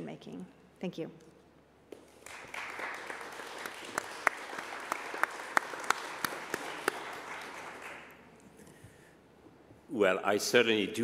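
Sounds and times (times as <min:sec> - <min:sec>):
audience applauding: 0:02.0 - 0:08.3.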